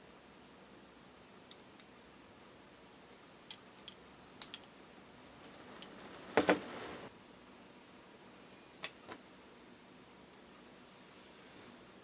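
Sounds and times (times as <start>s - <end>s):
small tools clicking and tapping: 3.5s - 4.7s.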